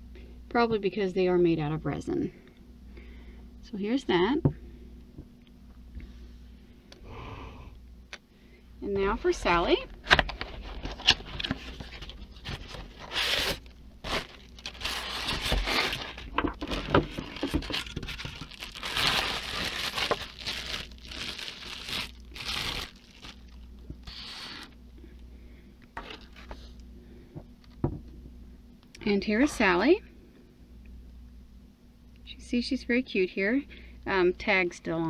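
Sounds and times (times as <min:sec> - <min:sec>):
packaging rustling and crinkling: 0:10.1 - 0:24.8.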